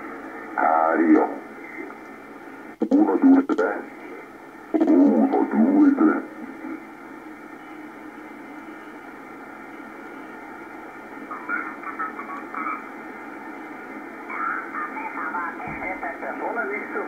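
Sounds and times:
radio receiver hiss: 0.0 - 17.0
garbled radio voice: 0.6 - 1.5, 2.8 - 3.9, 4.7 - 6.4, 11.3 - 12.9.

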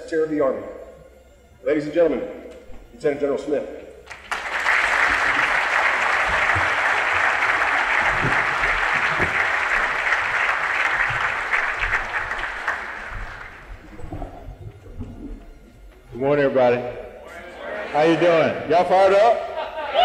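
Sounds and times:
audience applauding: 4.0 - 14.1.

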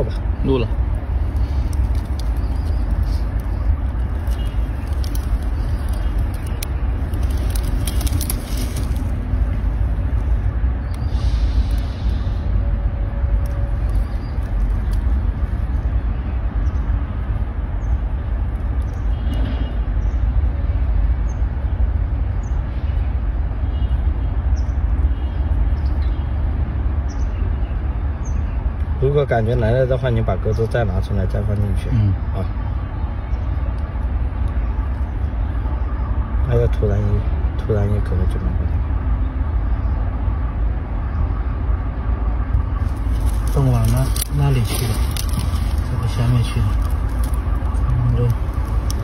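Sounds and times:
wind buffeting microphone: 38.8 - 49.0.

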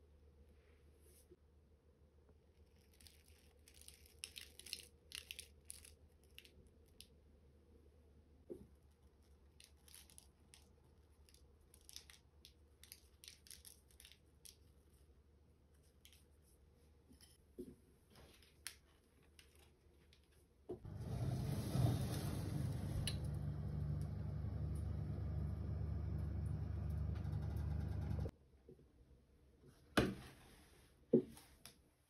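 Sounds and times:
faint crackling tearing: 2.6 - 6.5
low steady hum: 20.9 - 28.3.

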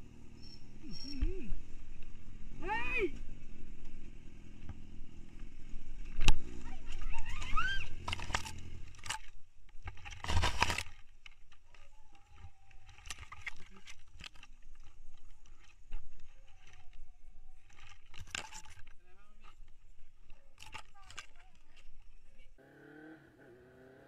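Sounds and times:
motorcycle scraping on road: 0.0 - 9.4
motorcycle engine: 0.0 - 11.8, 12.9 - 24.0.

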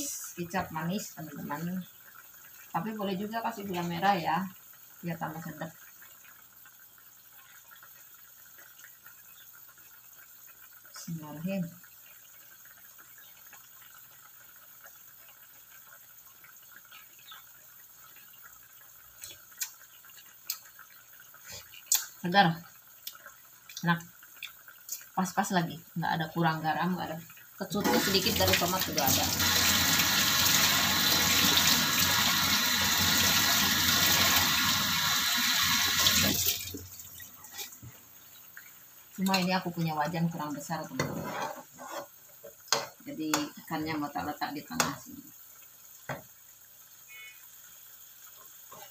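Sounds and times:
broth simmering with bubbling pops: 0.0 - 29.0, 36.2 - 48.9
water running from a tap: 0.0 - 41.1
low hiss: 42.3 - 48.9.

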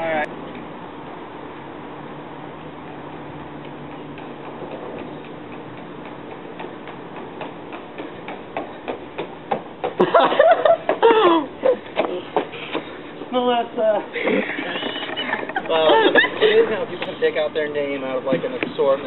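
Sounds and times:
footsteps on concrete: 3.1 - 10.2, 11.7 - 13.3, 14.3 - 17.5.

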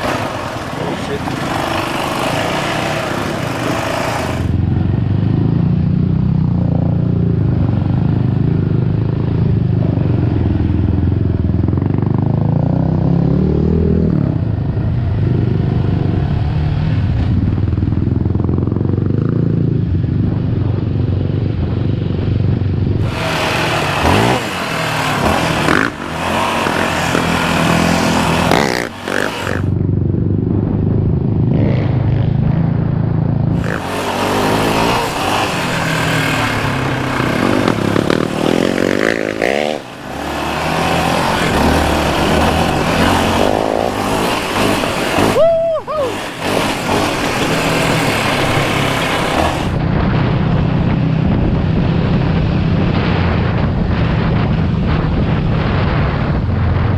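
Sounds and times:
quad engine revving: 0.0 - 4.6, 23.0 - 29.7, 33.5 - 49.8.

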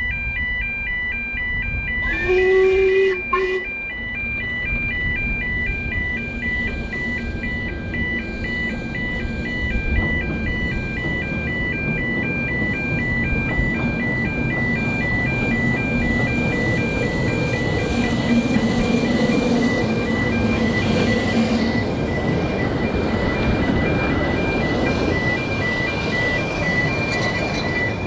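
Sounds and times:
level crossing alarm two-tone warble: 0.0 - 28.0
steam locomotive rumble: 1.7 - 28.0
steam locomotive whistle: 1.9 - 3.9.

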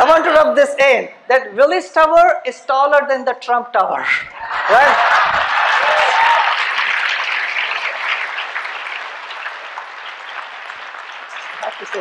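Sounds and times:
people laughing: 4.4 - 6.7
audience applauding: 4.7 - 12.0.

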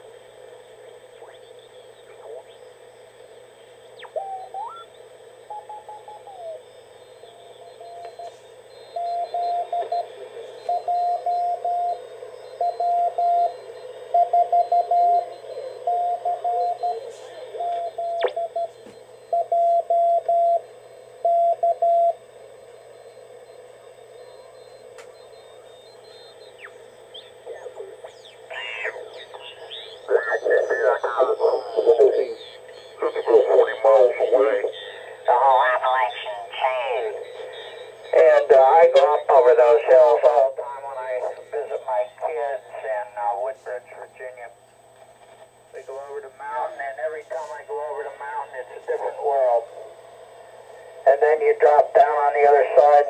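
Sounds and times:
radio band hiss: 0.0 - 53.0
warbling radio signals: 0.6 - 44.4, 45.8 - 50.2, 50.8 - 53.0
morse code tone: 5.5 - 20.6, 28.5 - 43.3.

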